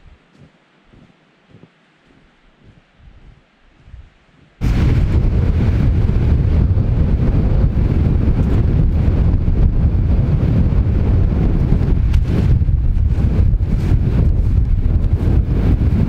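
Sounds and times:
strong wind buffeting microphone: 0.9 - 16.0.

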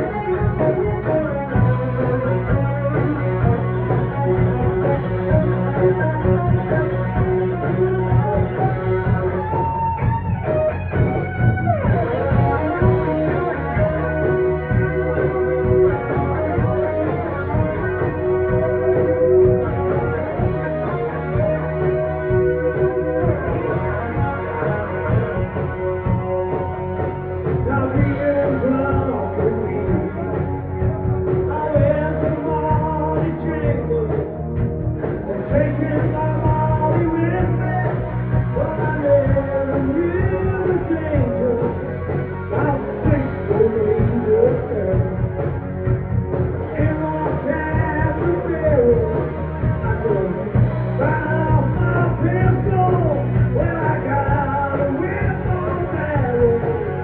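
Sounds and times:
male singer: 0.0 - 9.4, 27.4 - 45.6, 46.4 - 57.0
bass: 0.0 - 57.0
distorted electric guitar: 0.0 - 57.0
drums: 0.0 - 57.0
live rock band: 0.0 - 57.0.

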